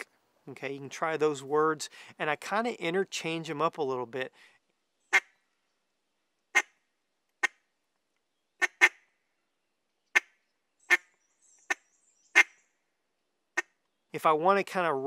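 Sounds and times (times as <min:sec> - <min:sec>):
duck call clucks: 0:08.6 - 0:09.0.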